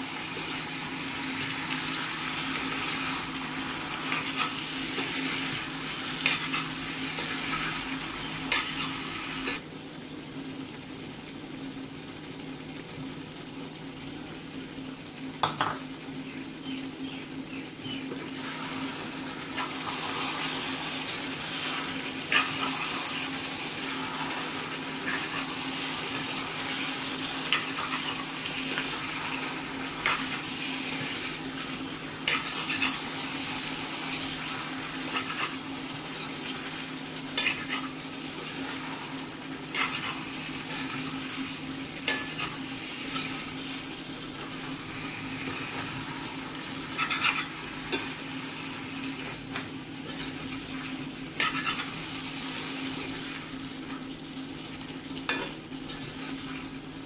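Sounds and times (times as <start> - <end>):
food sizzling in a skillet: 0.0 - 57.0
spatula scraping a pan: 46.9 - 48.1, 50.1 - 52.0.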